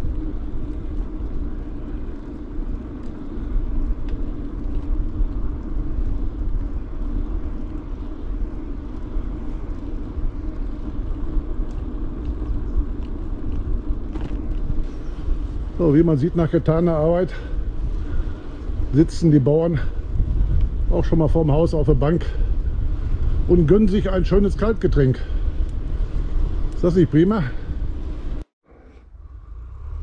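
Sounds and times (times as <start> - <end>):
bicycle rolling on path: 0.0 - 30.0
wind rumble on microphone: 0.0 - 30.0
faint clicks: 0.2 - 14.6.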